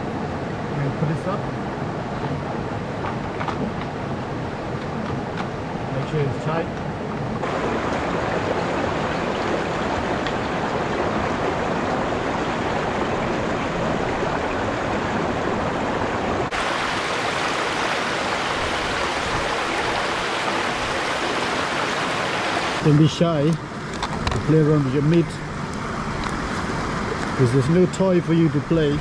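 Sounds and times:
river rushing over rocks: 7.4s - 22.9s.

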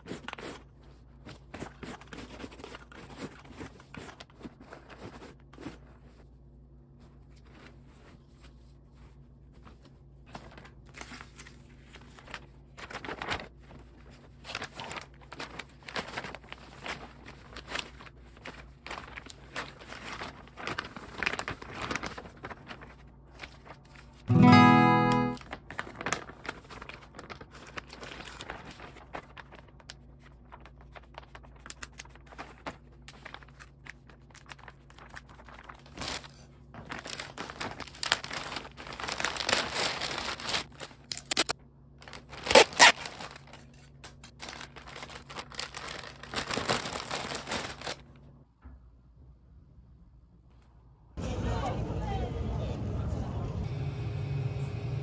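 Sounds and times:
packaging rustling and crinkling: 0.0s - 6.3s, 7.1s - 24.3s, 25.4s - 48.1s
acoustic guitar music: 24.3s - 25.4s
packing tape pulled off roll: 35.6s - 48.0s.

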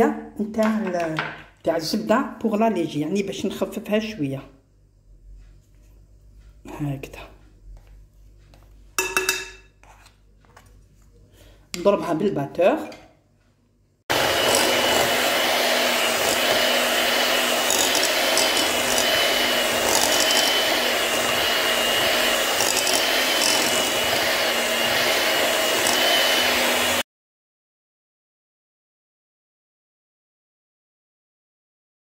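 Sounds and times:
electric hand mixer running: 14.1s - 27.0s.

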